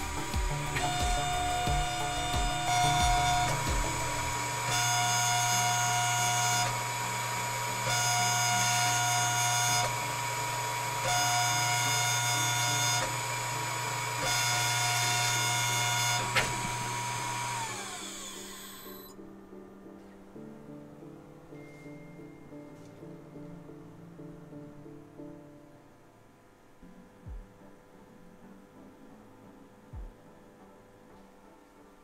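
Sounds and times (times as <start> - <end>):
engraving machine spindle whining: 0.0 - 19.1
lower machine whine: 0.0 - 19.2.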